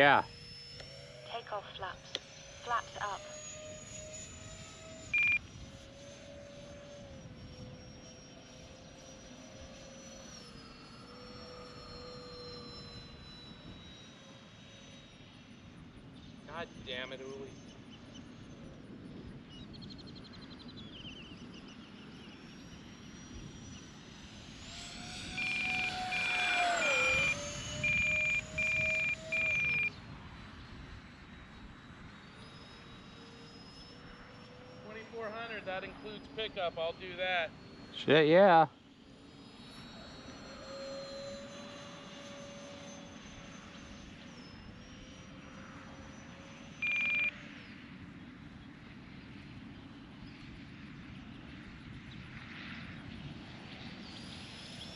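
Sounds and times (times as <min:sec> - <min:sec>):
electric ducted fans whining: 0:00.0 - 0:54.9
rapid electronic beeping: 0:25.1 - 0:29.9.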